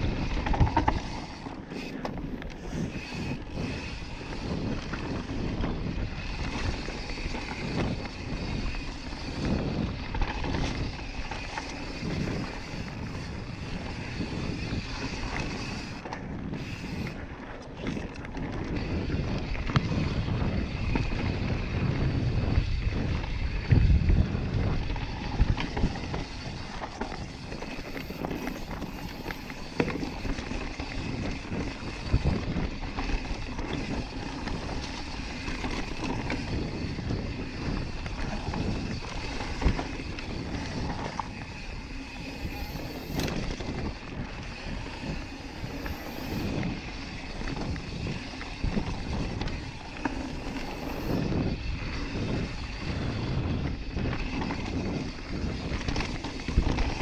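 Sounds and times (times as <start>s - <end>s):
bike tyres rushing over dirt: 0.0s - 57.0s
bike knocks and rattles: 0.1s - 1.4s.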